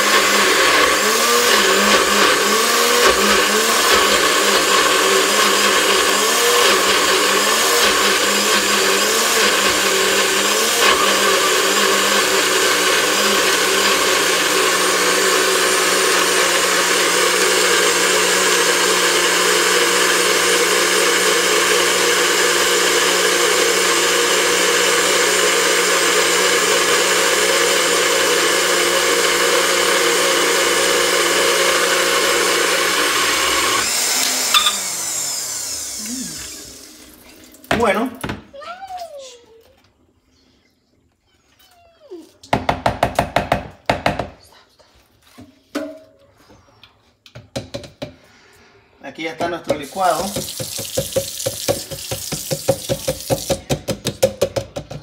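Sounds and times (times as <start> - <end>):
blender motor running: 0.0 - 37.4, 49.7 - 54.0.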